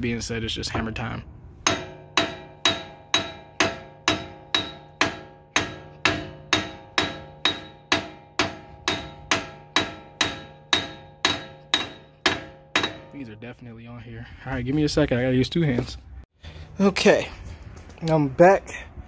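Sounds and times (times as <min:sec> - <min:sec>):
hammer striking metal stud: 0:01.6 - 0:13.2.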